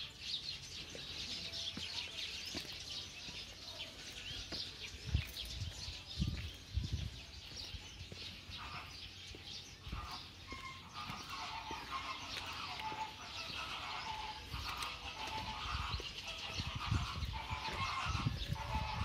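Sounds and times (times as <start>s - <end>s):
lower repeated bird calls: 7.0s - 19.0s.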